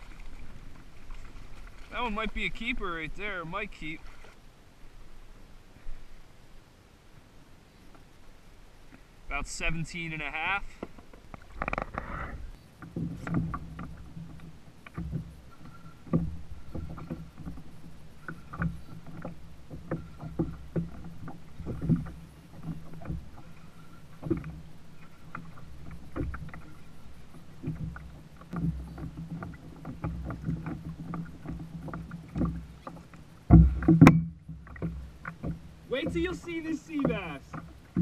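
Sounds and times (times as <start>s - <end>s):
water moving against hull: 0.0s - 38.0s
fishing gear knocking on plastic kayak: 27.6s - 38.0s.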